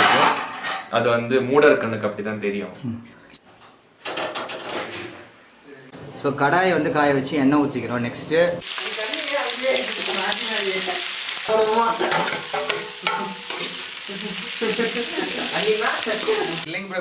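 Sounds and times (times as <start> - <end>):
onions sizzling in hot oil: 8.6 - 17.0
spoon scraping a pan: 11.8 - 14.0.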